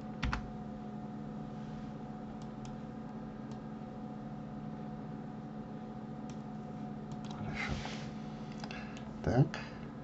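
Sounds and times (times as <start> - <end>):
steady low hum: 0.0 - 10.0
computer mouse clicks: 7.1 - 7.4.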